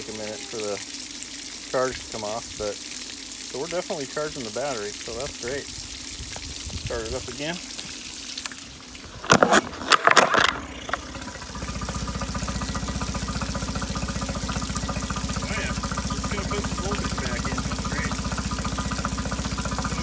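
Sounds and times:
outboard engine idling: 8.6s - 20.0s
pull-start cord pulls: 9.2s - 11.3s.

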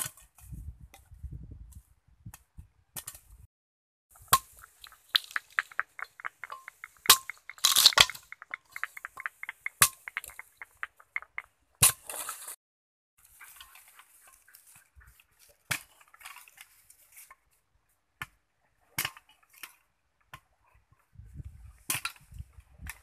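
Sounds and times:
small rapid clicks: 4.6s - 11.6s.

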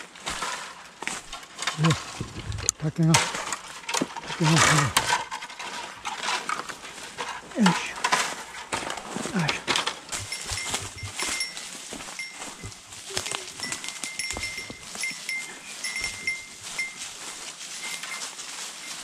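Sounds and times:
footsteps crunching through dry leaves: 0.0s - 19.0s
faint high ringing tone: 10.1s - 19.0s.

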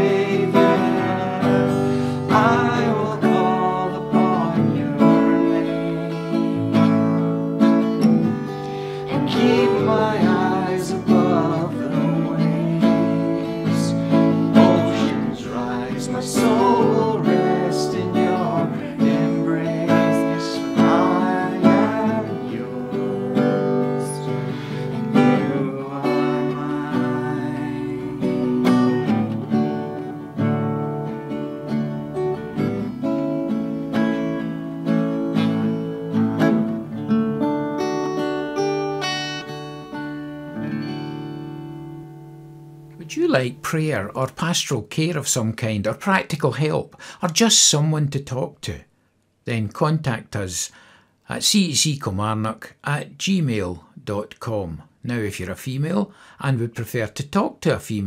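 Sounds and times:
girl and man singing: 0.0s - 6.8s, 8.9s - 29.2s
acoustic guitar strumming: 0.0s - 44.6s.

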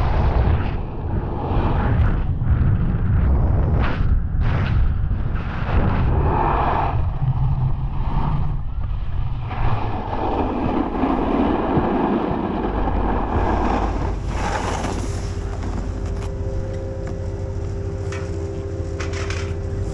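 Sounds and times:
snowboard carving over snow: 0.0s - 18.0s
wind buffeting microphone: 0.0s - 19.0s
chairlift machinery hum: 8.0s - 19.9s.

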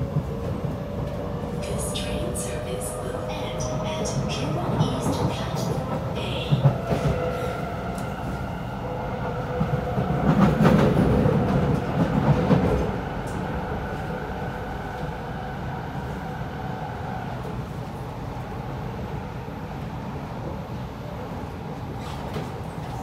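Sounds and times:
train rattling: 0.0s - 18.2s
train wheels rumbling on rail: 0.0s - 23.0s.

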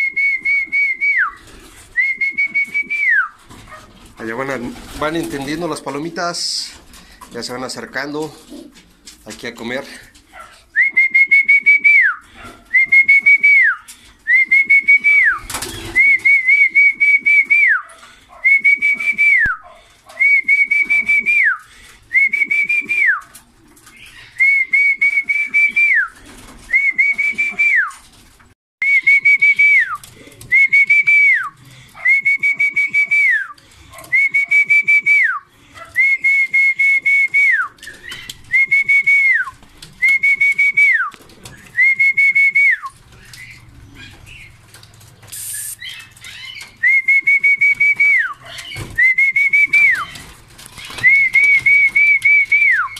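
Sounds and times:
person whistling a call: 0.0s - 1.4s, 2.0s - 3.4s, 10.8s - 12.2s, 12.8s - 17.8s, 18.5s - 19.6s, 20.2s - 23.2s, 24.4s - 26.1s, 26.7s - 27.9s, 28.8s - 33.6s, 34.2s - 35.4s, 36.0s - 37.7s, 38.5s - 41.1s, 41.8s - 42.9s, 45.4s - 45.8s, 46.8s - 48.4s, 49.0s - 50.0s, 51.0s - 52.9s.

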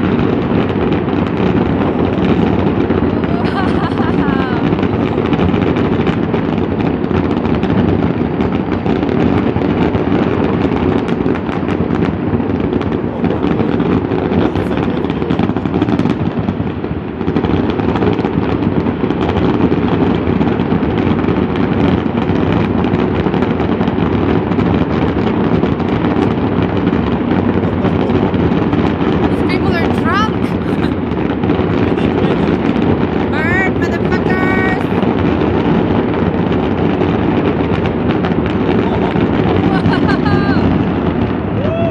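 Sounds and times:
fireworks bangs and crackles: 0.0s - 41.9s.

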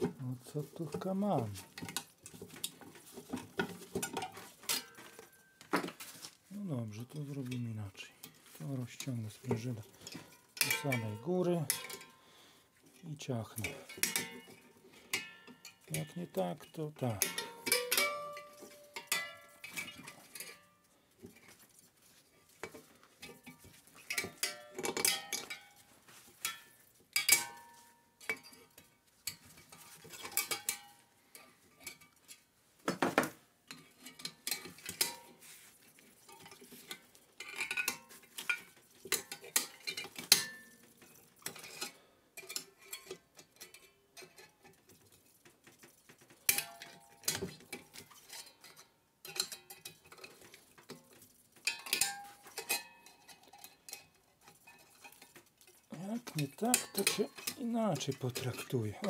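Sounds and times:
pliers clinking on metal: 10.6s - 12.1s, 55.9s - 59.0s.

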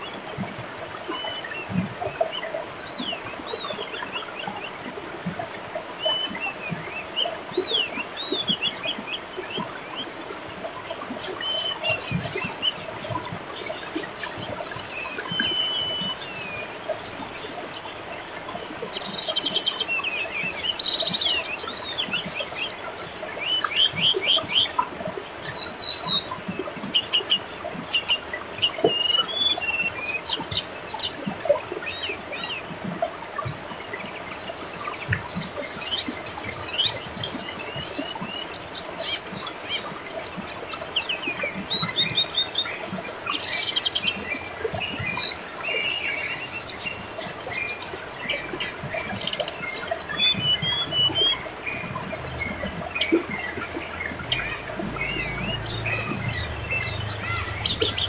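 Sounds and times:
river flowing: 45.6s - 58.0s
birds chirping and singing: 49.2s - 58.0s.

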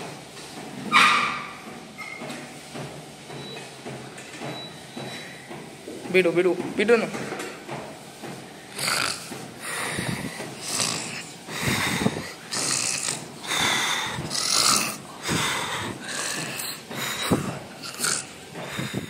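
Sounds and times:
person snoring loudly: 8.7s - 19.0s.

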